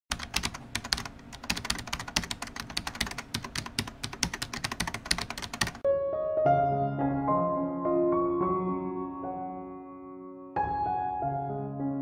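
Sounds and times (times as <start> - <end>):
computer keyboard typing: 0.1 - 5.8
piano note: 5.8 - 12.0.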